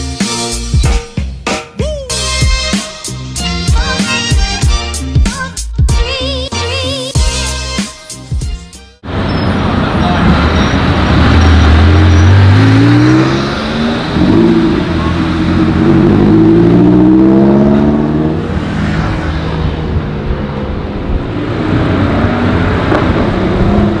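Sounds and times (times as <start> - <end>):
car engine accelerating: 9.0 - 24.0.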